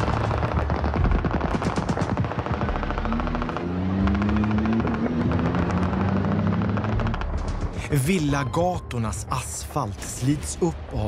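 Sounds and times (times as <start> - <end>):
machine-gun fire: 0.0 - 7.7.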